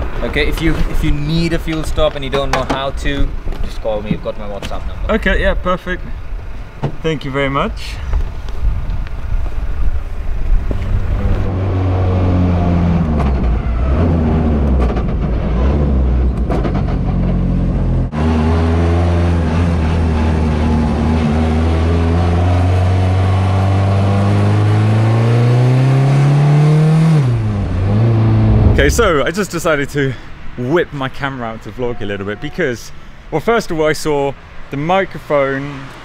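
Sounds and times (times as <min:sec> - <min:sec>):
car engine revving: 0:22.6 - 0:29.4
wind rush: 0:27.7 - 0:29.5.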